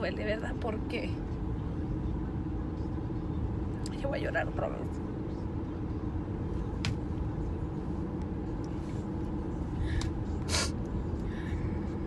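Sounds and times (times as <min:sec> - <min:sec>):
road and engine rumble in car: 0:00.0 - 0:12.0
person sniffing while crying: 0:10.5 - 0:10.8.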